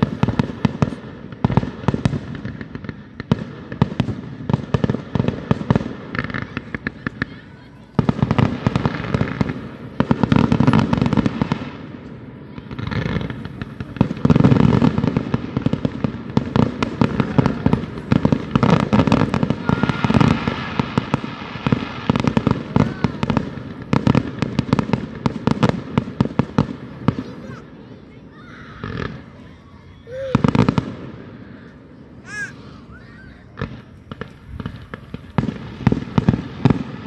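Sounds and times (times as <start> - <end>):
fireworks crackling: 0.0 - 37.0
fireworks shells bursting: 5.4 - 27.5.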